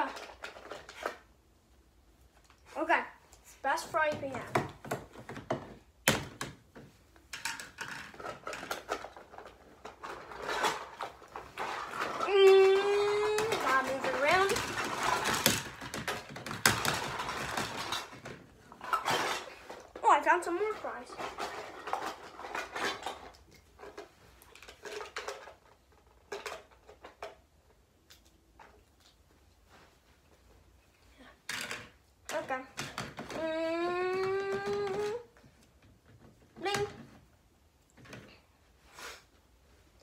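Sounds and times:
plastic toy cookware clattering: 7.3s - 27.4s.

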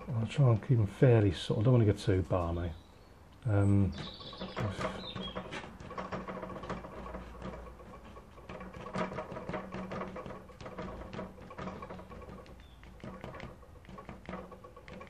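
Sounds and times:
scratches and taps on paper: 4.0s - 15.0s.

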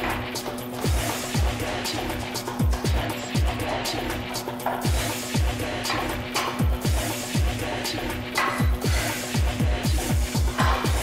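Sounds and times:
electronic music with fast kick drum: 0.0s - 11.0s.

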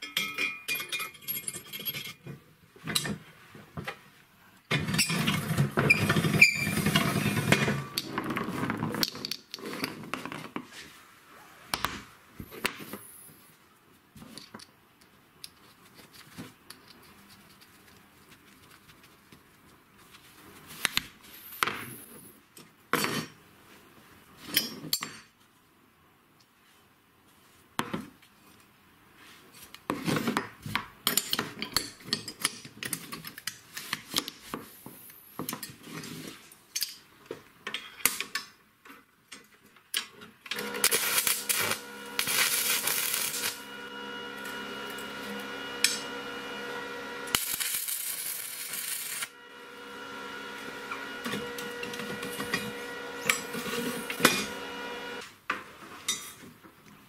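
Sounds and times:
metal parts clinking and knocking: 0.0s - 2.3s
steady hiss: 47.3s - 49.3s.

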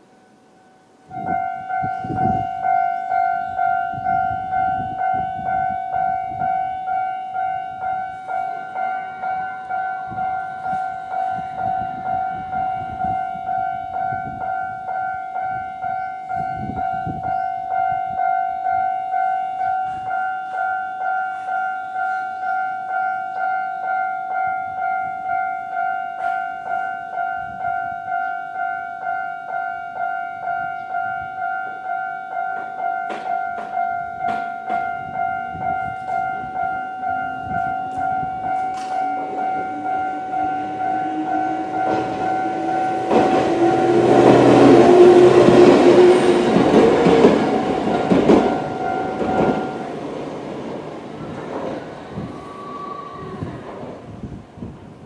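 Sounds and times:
train approaching whine: 0.0s - 55.0s
level crossing electronic bell: 1.1s - 50.1s
train wheels clattering on track: 32.5s - 35.0s, 37.5s - 52.4s.

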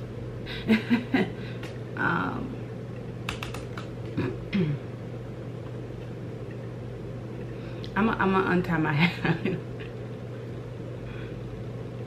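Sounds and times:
computer keyboard key clicks: 3.3s - 3.9s.

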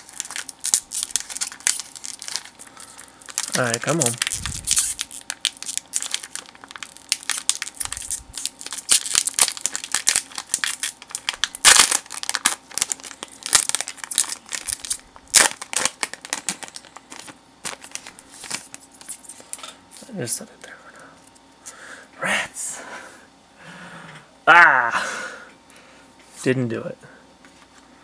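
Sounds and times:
foil wrapper crinkling and tearing: 0.0s - 19.7s.

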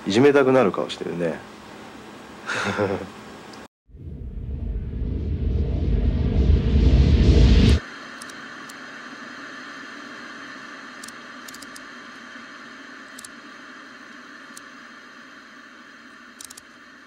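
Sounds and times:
television static hiss: 0.0s - 3.7s, 7.8s - 17.0s.

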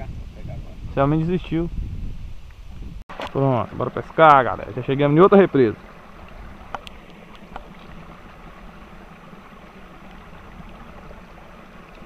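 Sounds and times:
water cascading into pond: 3.1s - 12.0s.

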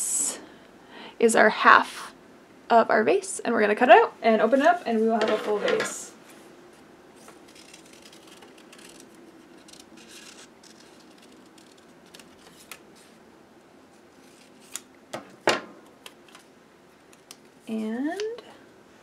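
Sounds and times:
scissors snipping paper: 7.5s - 12.8s.

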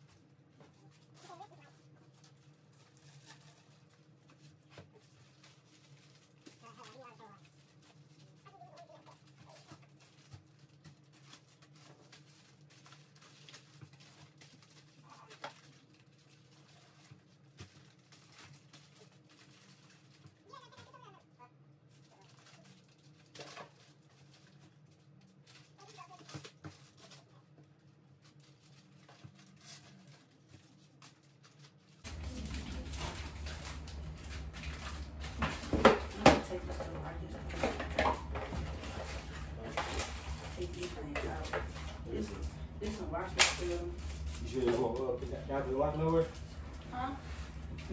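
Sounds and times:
low room hum: 0.0s - 47.9s
plastic packaging rustling: 0.0s - 47.9s
steady low hum: 31.9s - 47.9s.

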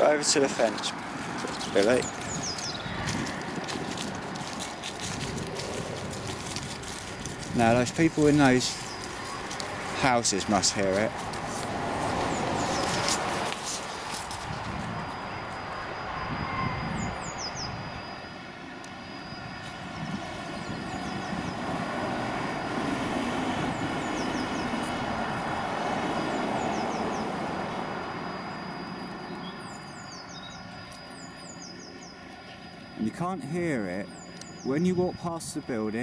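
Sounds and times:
aircraft engines passing: 0.0s - 36.0s
bird chirps: 1.4s - 3.2s, 8.2s - 9.6s, 12.3s - 13.2s, 16.5s - 18.2s, 19.2s - 21.7s, 23.5s - 24.9s, 25.9s - 27.4s, 28.5s - 35.8s.

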